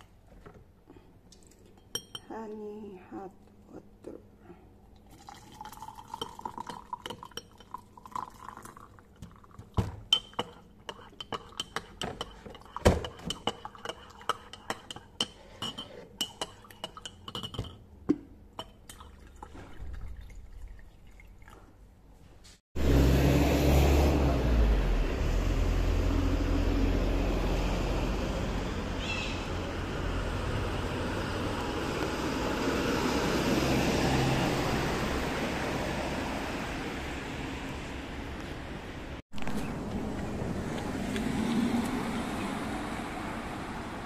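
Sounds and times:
glassware and dishes clinking: 1.8 - 2.3, 14.7 - 17.8
liquid being poured: 4.9 - 9.8, 18.6 - 21.8
road traffic: 22.8 - 44.0.

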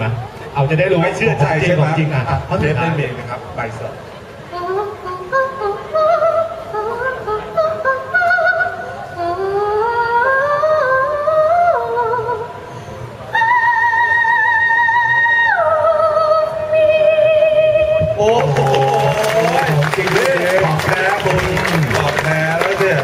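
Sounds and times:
woman singing classical: 4.5 - 12.7.

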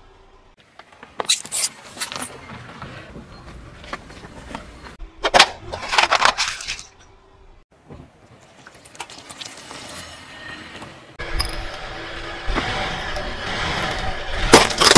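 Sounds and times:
tyre crushing small objects: 14.3 - 14.9.

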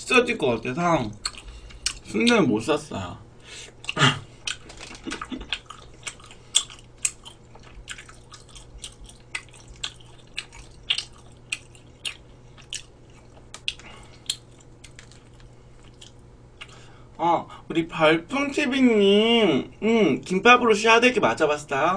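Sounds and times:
faint low hum: 0.0 - 21.9
wet mouth chewing: 1.1 - 2.4, 3.7 - 16.8.

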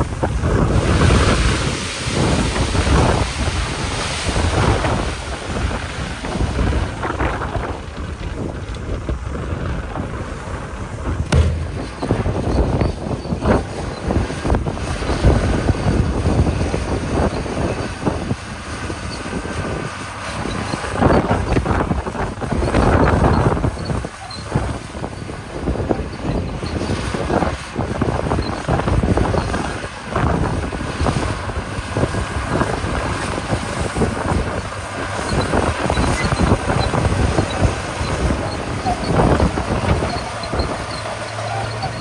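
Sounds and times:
bulldozer diesel engine running: 0.0 - 42.0
wind buffeting microphone: 0.0 - 42.0
sharp knocks: 11.3 - 13.0.

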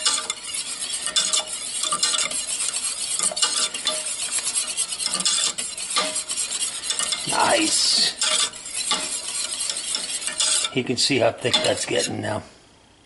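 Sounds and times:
whisk scraping saucepan: 0.0 - 12.4
whisk wires tapping pan: 0.0 - 12.4.

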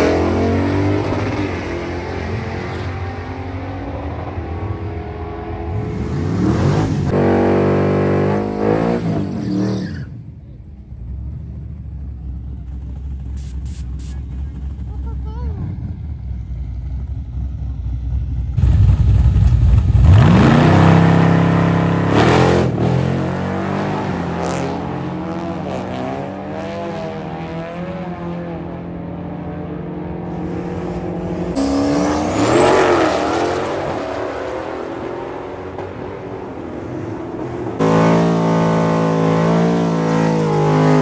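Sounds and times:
drag racing car engine: 0.0 - 41.0.

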